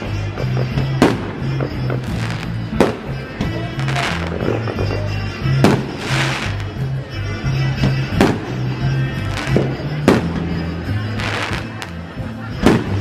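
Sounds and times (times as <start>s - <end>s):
fireworks bangs: 0.0s - 4.9s, 5.6s - 6.8s, 11.2s - 12.0s, 12.6s - 13.0s
fireworks crackling hiss: 5.6s - 6.9s, 11.1s - 12.0s.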